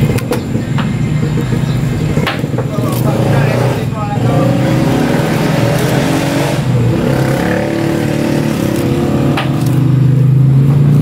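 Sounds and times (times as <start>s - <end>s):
engine humming: 0.0s - 11.0s.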